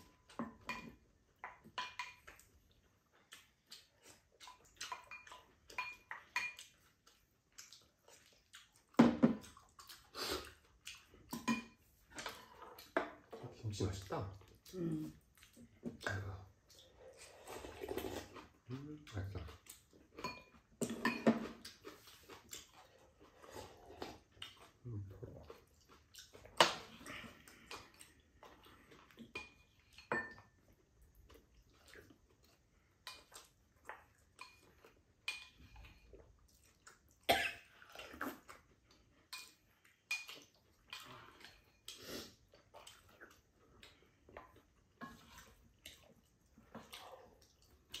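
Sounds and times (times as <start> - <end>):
tableware clinking: 29.4 - 30.4.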